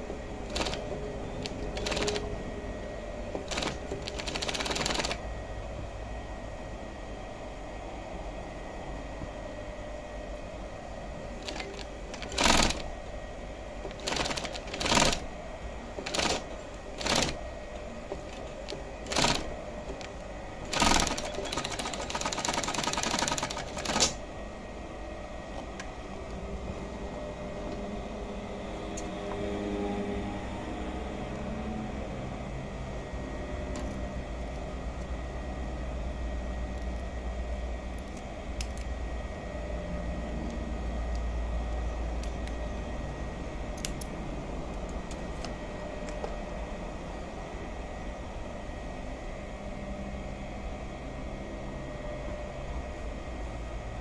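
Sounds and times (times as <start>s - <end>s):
low steady hum: 0.0s - 54.0s
sewing machine stitching: 0.5s - 2.3s, 3.4s - 5.2s, 11.4s - 12.9s, 13.9s - 15.2s, 16.0s - 17.4s, 18.3s - 20.0s, 20.7s - 24.2s.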